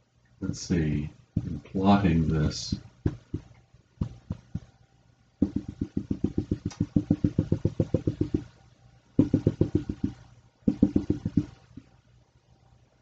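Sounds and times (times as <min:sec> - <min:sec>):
marker tapping on glass: 0:02.7 - 0:04.7, 0:05.4 - 0:08.5, 0:09.2 - 0:11.9.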